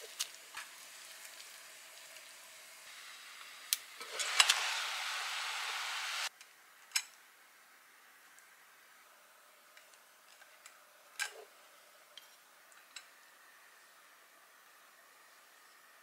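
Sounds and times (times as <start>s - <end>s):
boiling water and steam hissing: 0.0s - 6.4s, 7.4s - 16.0s
chopsticks clicking on steamer: 3.7s - 4.6s.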